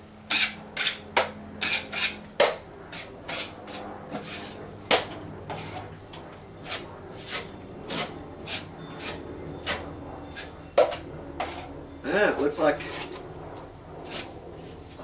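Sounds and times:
drywall knife scraping compound: 0.3 - 4.6, 5.5 - 5.9, 6.6 - 9.8, 10.4 - 11.7, 14.0 - 14.3.

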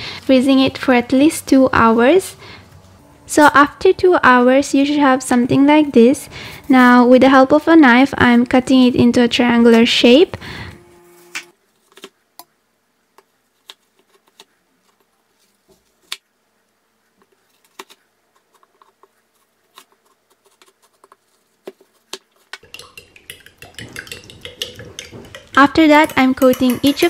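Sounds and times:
fork whisking eggs in bowl: 21.9 - 27.0.

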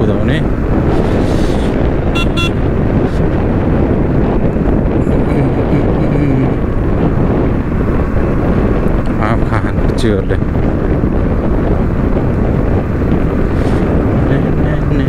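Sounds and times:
motorcycle riding: 0.0 - 15.0
wind buffeting microphone: 0.0 - 15.0
vehicle horn beeps: 2.1 - 2.6.

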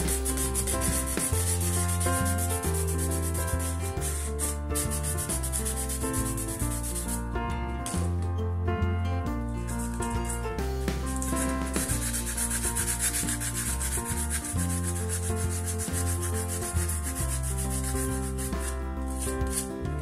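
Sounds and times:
sandpaper rubbing back and forth: 0.0 - 7.2, 11.1 - 19.8
acoustic background music: 0.0 - 20.0.

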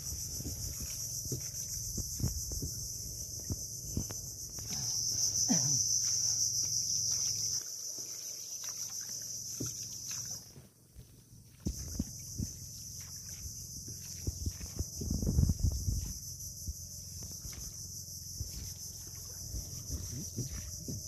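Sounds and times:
insects buzzing: 0.0 - 21.0.

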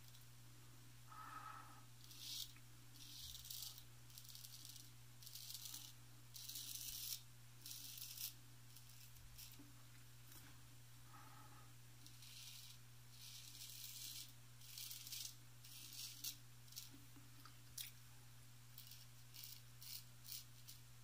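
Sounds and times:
razor scraping stubble: 2.0 - 9.6, 12.0 - 17.0, 18.8 - 20.8.

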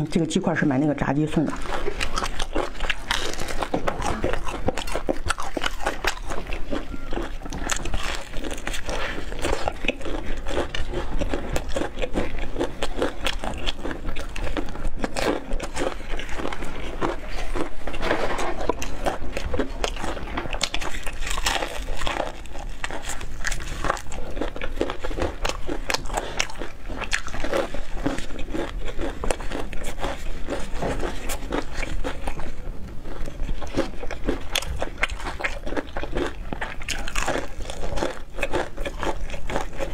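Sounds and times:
chewing crispy fried chicken: 0.0 - 39.9.

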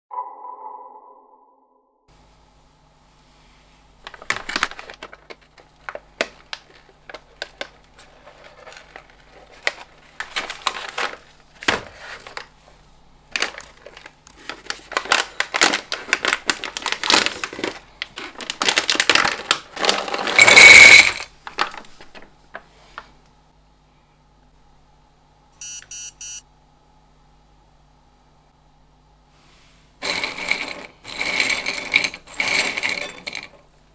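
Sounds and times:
foil pouch crinkling: 4.0 - 12.4, 13.3 - 20.8
short electronic beeping: 25.6 - 26.4.

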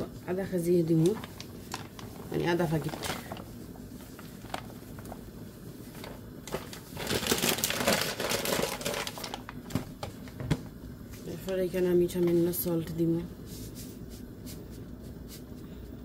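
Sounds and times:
paper packet crinkling: 0.8 - 10.4.

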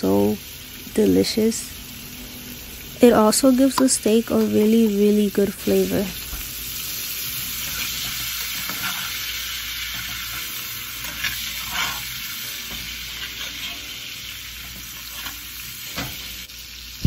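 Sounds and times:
butter sizzling in a skillet: 0.0 - 17.0.

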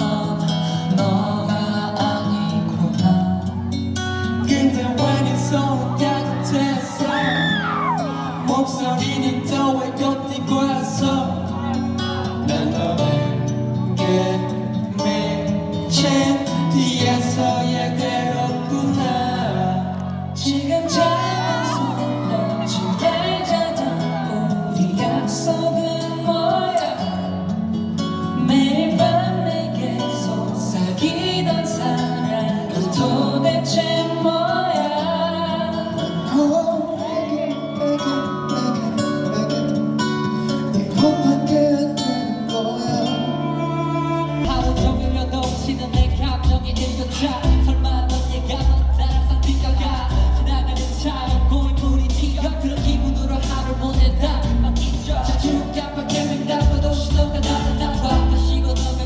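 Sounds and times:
group singing into microphones: 0.0 - 27.6, 28.2 - 59.0
heavy bass beat: 44.5 - 59.0.

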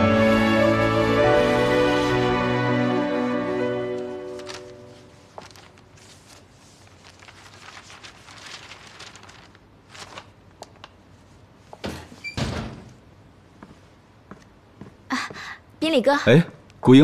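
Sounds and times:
books and papers shuffled: 4.0 - 11.8.

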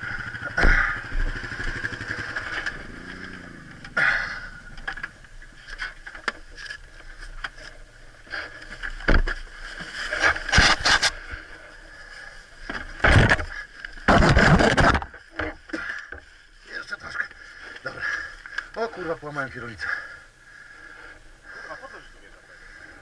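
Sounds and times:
rustling of dry grass: 0.0 - 19.8
knocks and scrapes: 8.4 - 11.2, 12.6 - 15.6
clattering thumps: 12.6 - 16.2.

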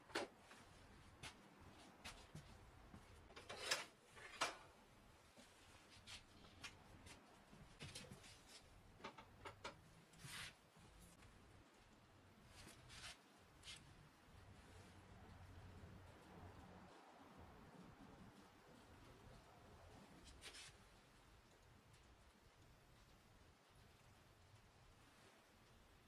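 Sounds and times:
small parts handled on wooden bench: 3.2 - 4.7.

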